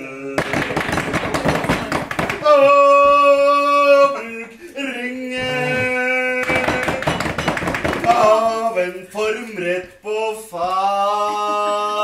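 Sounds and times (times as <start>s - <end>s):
man singing blues: 2.4s - 7.2s, 8.0s - 12.0s.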